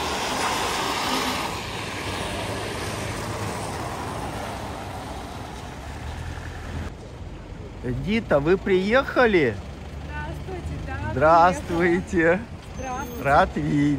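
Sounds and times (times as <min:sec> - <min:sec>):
car passing by: 0:00.0 - 0:06.9.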